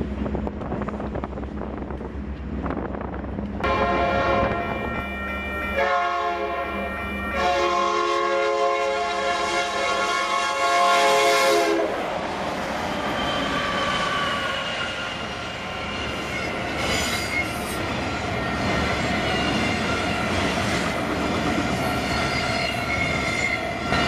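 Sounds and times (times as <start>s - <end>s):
train air horn: 3.6s - 12.0s
train wheels clattering on rails: 12.5s - 24.0s
faint high wheel squeal: 12.9s - 17.8s.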